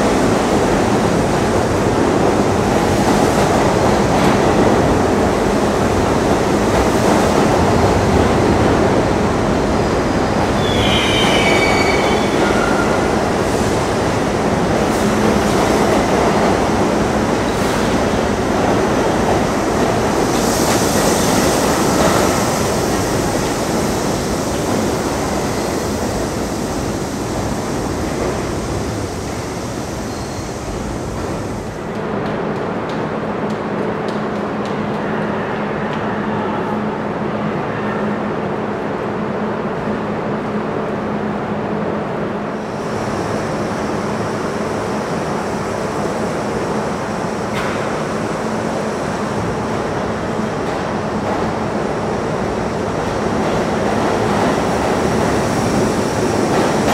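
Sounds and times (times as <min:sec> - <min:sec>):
subway train wheels rumbling: 0:00.0 - 0:56.9
high wheel squeals: 0:10.6 - 0:13.0.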